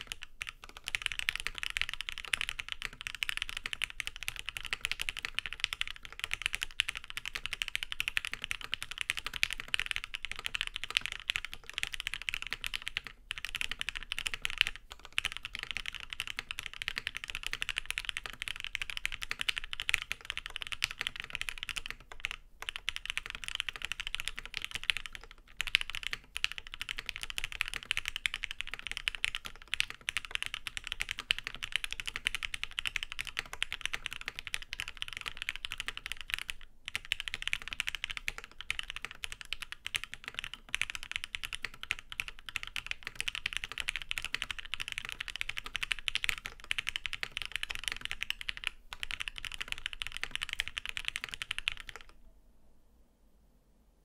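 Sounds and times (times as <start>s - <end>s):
mechanical keyboard typing: 0.0s - 52.2s.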